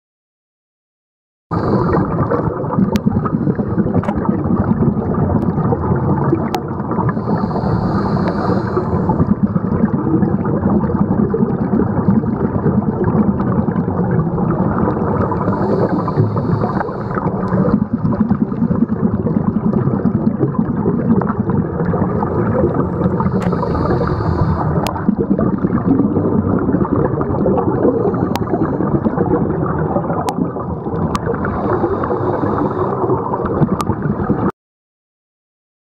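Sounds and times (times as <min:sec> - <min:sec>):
underwater bubbles: 0:01.5 - 0:34.5.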